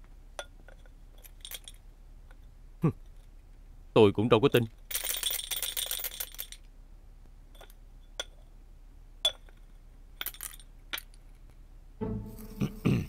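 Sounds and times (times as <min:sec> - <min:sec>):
metallic jingling: 0:04.9 - 0:06.7.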